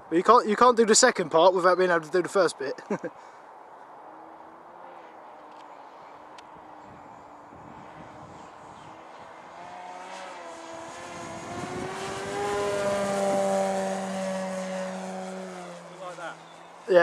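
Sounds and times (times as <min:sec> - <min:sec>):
model plane propeller drone: 0:03.9 - 0:17.0.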